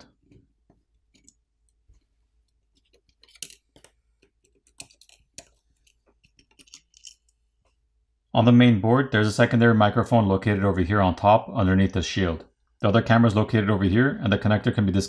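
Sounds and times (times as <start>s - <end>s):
clicks taps and scrapes of phone parts: 0.3s - 7.8s.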